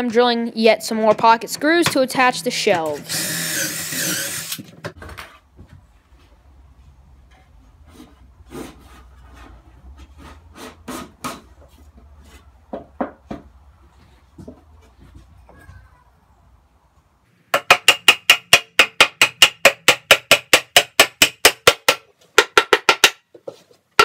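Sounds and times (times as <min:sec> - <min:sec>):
drill boring into wood: 0:02.9 - 0:04.6.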